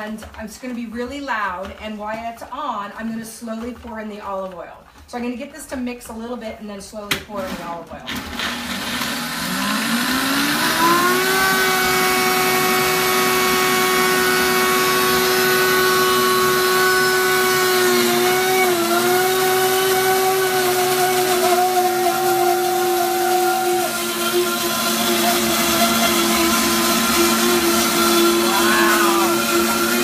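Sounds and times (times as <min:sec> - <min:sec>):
blender motor whine: 0:08.1 - 0:30.0.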